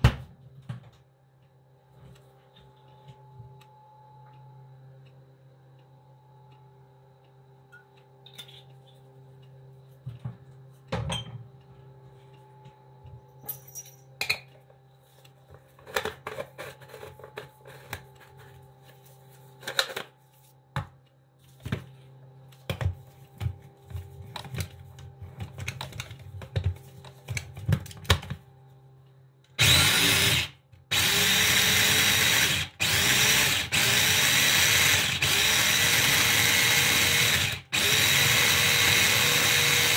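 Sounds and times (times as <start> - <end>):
electric food chopper running: 29.6 - 39.9.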